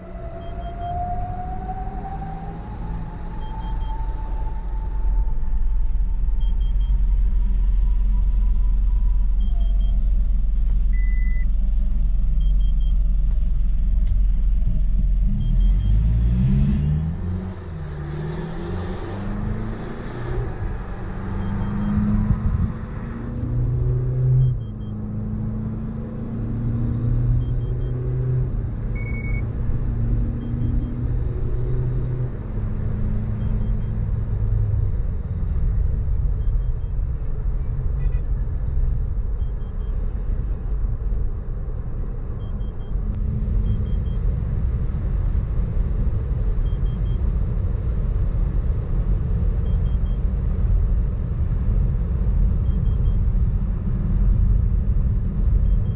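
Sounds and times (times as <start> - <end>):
short beep: 6.3 - 7.2, 9.2 - 10.1, 10.9 - 11.5, 21.2 - 22.8, 28.9 - 29.5
car engine revving: 6.4 - 34.4.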